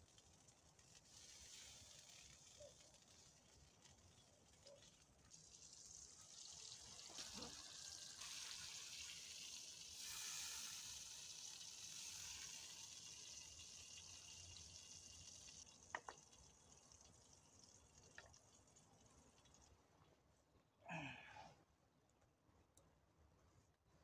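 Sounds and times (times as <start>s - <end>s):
steak sizzling in a frying pan: 0.9s - 2.6s, 5.4s - 15.7s.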